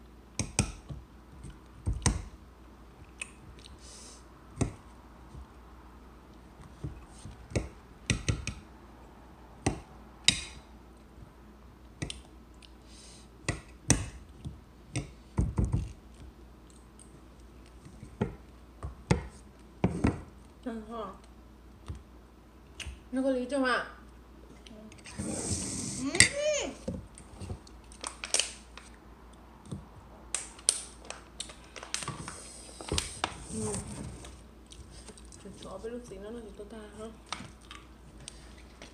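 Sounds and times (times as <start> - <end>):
chewing and crunching: 37.5 - 38.9.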